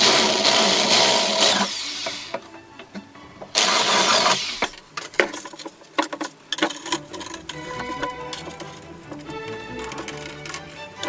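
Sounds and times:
power drill boring plastic pipe: 0.0s - 2.5s, 3.5s - 4.8s.

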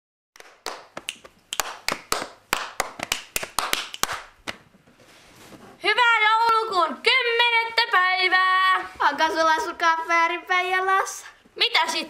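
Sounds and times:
people clapping hands: 0.4s - 4.6s.

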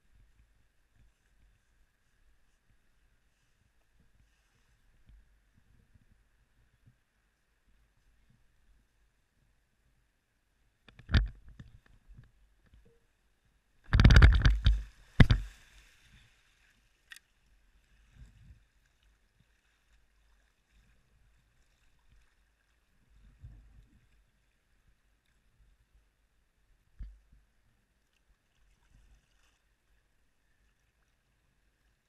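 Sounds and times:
kayak knock: 13.9s - 15.6s
kayak hull sliding and splashing: 13.9s - 23.7s
soft paddle splashes: 14.4s - 25.5s, 28.0s - 32.0s.

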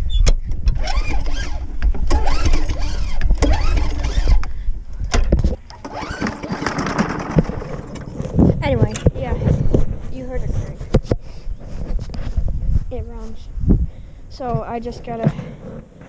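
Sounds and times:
lawn mower engine pull-started: 0.6s - 4.5s, 5.1s - 9.1s.

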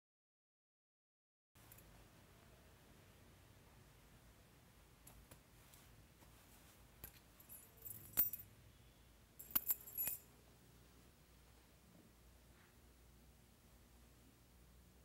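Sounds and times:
small metal objects jingling: 7.4s - 8.5s, 9.4s - 10.3s.

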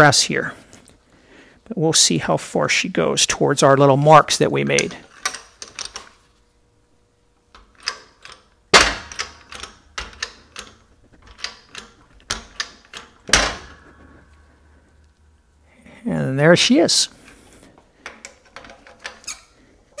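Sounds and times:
shop press metallic clicks and knocks: 7.6s - 13.8s.

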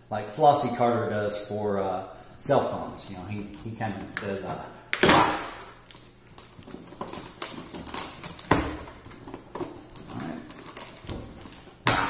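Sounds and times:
knife scraping packing tape: 6.4s - 9.0s.

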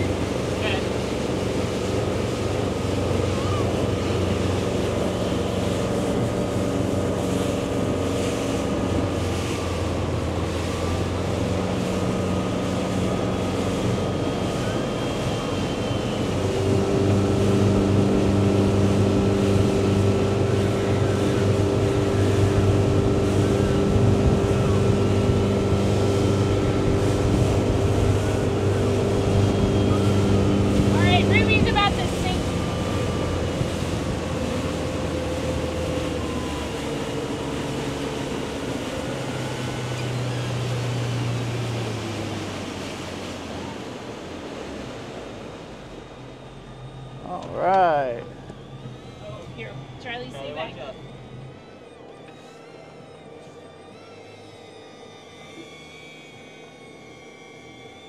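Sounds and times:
rushing water: 0.0s - 48.2s
motorboat engine running: 0.0s - 58.0s
wind noise: 1.3s - 36.7s.

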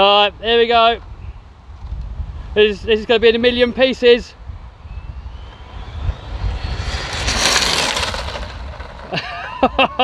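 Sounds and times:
wind rumble on microphone: 0.8s - 10.0s
rc car passing: 3.5s - 10.0s
electric motor whining: 4.8s - 9.2s.

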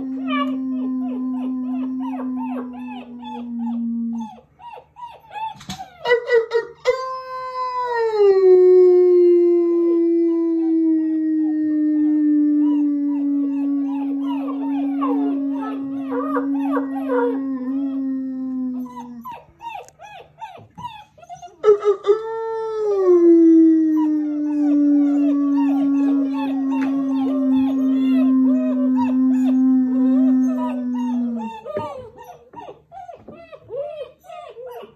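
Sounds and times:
person howling: 0.0s - 4.3s, 7.1s - 19.2s, 22.1s - 31.7s
puppies howling and yipping: 0.0s - 7.0s, 10.2s - 34.9s.

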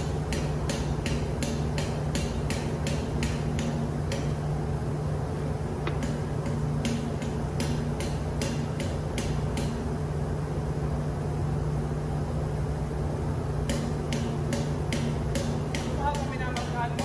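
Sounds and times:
engine-room machinery hum: 0.0s - 17.0s.

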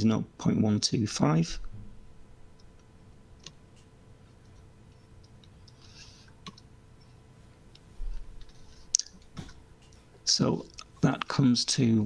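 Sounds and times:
faint steady hum: 0.0s - 12.0s
faint computer clicks and ticks: 2.5s - 7.1s.

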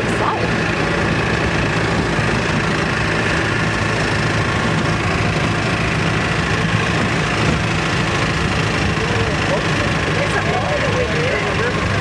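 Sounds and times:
road noise: 0.0s - 12.0s
vehicle engine running: 0.0s - 12.0s.

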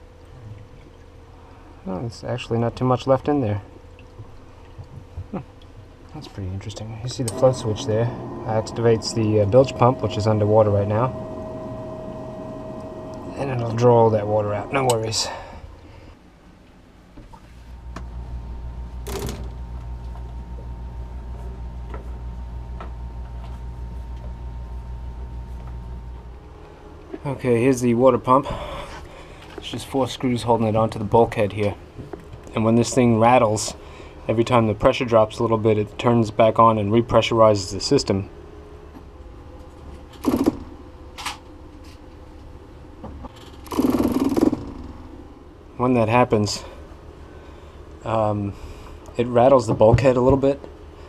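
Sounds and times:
water pump humming: 0.0s - 16.2s, 17.3s - 36.6s
water pump running in bursts: 7.1s - 15.7s, 43.6s - 44.9s.

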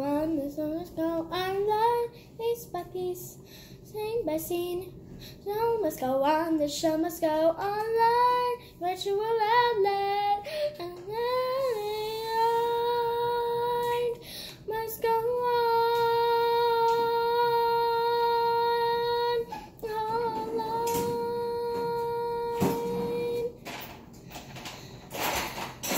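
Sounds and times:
girl singing long notes: 5.5s - 23.6s.

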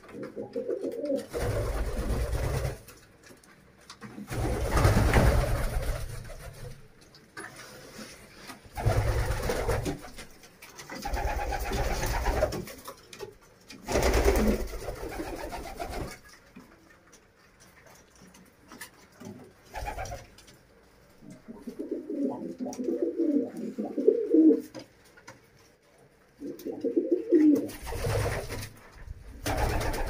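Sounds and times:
pigeons cooing: 0.0s - 2.4s, 21.2s - 24.8s, 26.4s - 28.5s.

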